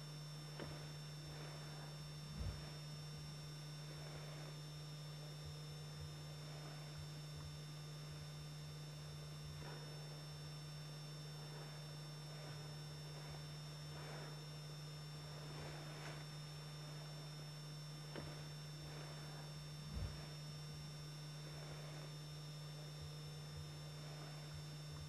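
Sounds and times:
low electrical hum with hiss: 0.0 - 25.0
low thump: 2.3 - 2.8, 19.9 - 20.4.

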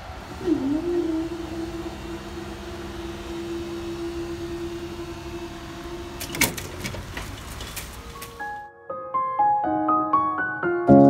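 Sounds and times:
barrier mechanism humming: 0.0 - 8.6.

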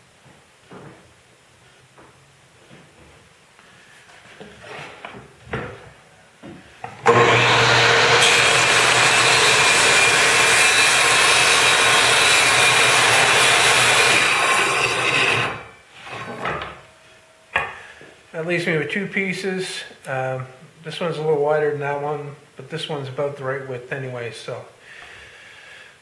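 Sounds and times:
table saw cutting wood: 6.8 - 16.7.

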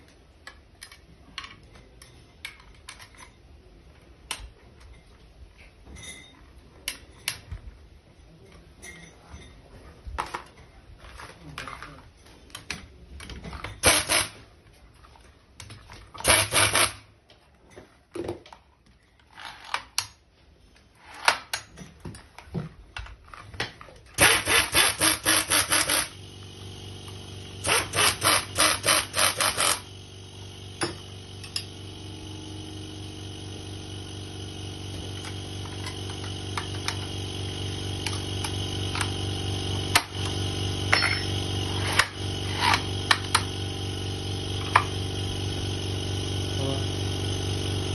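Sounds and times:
impact driver hammering: 13.8 - 14.4, 16.2 - 17.0, 24.2 - 26.2, 27.6 - 29.9
low machine hum: 24.1 - 47.9.

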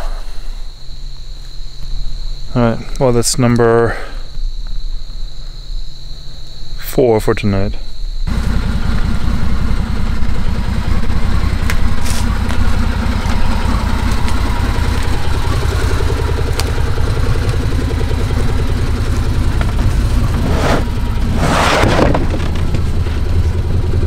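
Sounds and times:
engine idling: 8.0 - 24.0.

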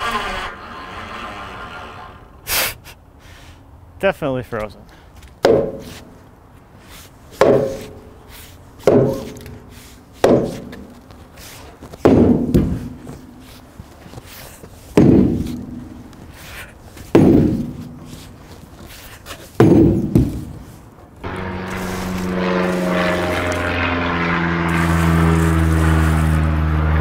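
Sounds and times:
heavy blows on wood: 5.4 - 6.2, 7.3 - 8.1, 8.8 - 23.3.

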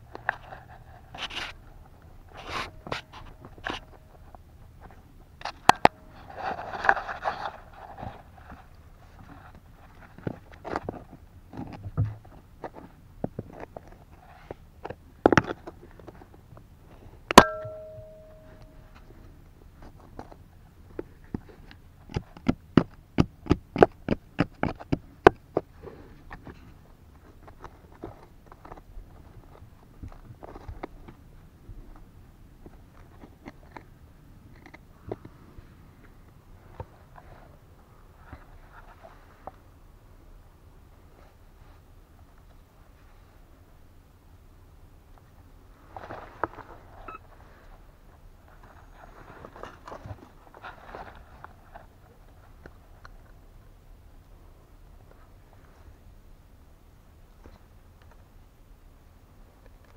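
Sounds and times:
hand scraping soil: 0.1 - 16.4
digging tool scraping soil and rock: 2.3 - 3.9
sharp tool strikes: 17.3 - 18.7
ringing metallic clang: 17.4 - 18.9.

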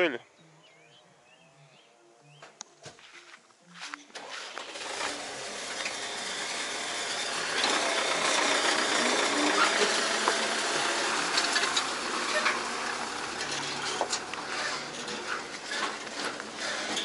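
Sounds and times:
tractor engine running: 4.2 - 17.0.

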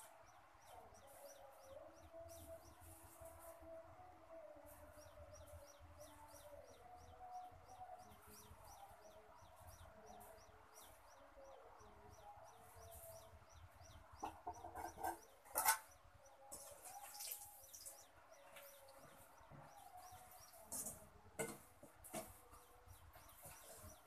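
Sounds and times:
chicks peeping: 0.2 - 3.8, 4.7 - 24.0
chickens clucking: 12.8 - 24.0.

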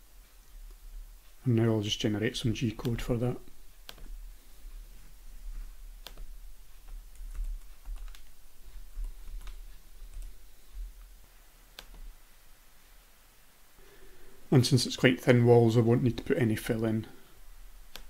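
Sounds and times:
low steady hum: 0.0 - 18.0
mouse clicks: 3.8 - 4.2, 6.0 - 6.3, 11.7 - 12.1
computer keyboard keystrokes: 6.0 - 8.3, 9.0 - 10.3.

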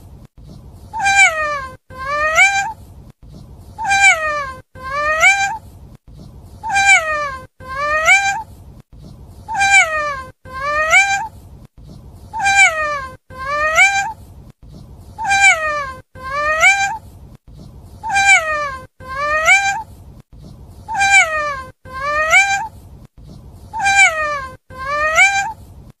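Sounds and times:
cat meowing: 0.9 - 2.8, 3.8 - 5.6, 6.6 - 8.5, 9.5 - 11.3, 12.3 - 14.2, 15.2 - 17.0, 18.0 - 19.9, 20.9 - 22.7, 23.7 - 25.6.

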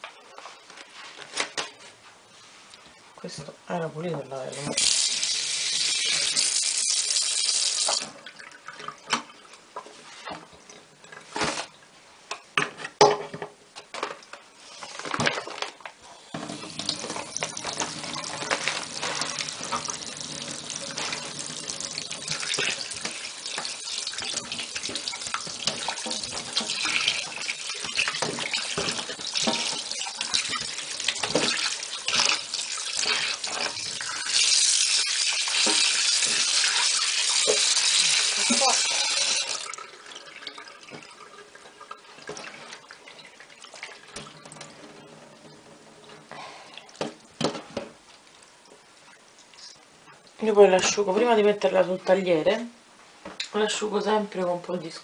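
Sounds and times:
tap water running into sink: 4.6 - 9.4, 16.4 - 44.8
knocks and splashes: 16.4 - 33.8.

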